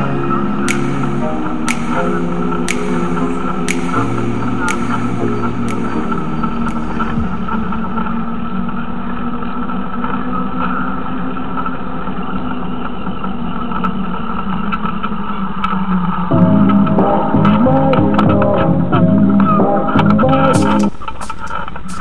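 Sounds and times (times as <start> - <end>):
music: 0.0 - 10.5, 16.3 - 22.0.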